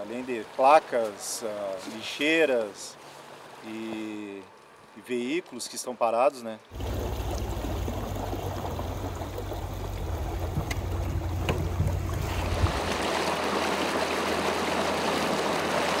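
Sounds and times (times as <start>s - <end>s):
water rushing: 0.0s - 5.9s, 6.7s - 16.0s
boat motor rumbling: 6.7s - 16.0s
light knocks: 10.4s - 12.3s.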